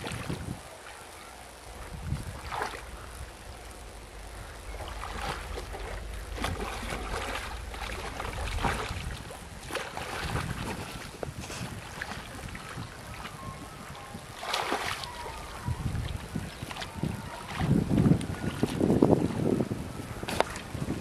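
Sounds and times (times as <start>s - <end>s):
wind rumble on microphone: 0.0s - 21.0s
fish splashing at water surface: 3.8s - 12.8s, 14.4s - 15.2s.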